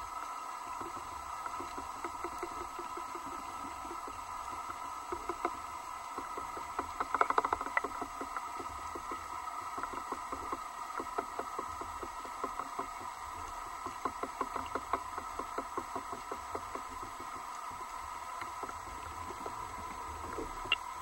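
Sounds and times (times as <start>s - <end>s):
light clicks and knocks: 0.7s - 20.9s.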